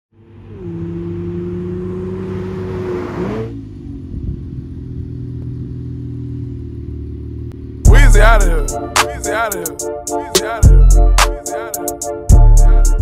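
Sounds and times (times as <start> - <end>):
car engine running: 0.1 - 9.8
road and wind hiss: 0.2 - 7.8.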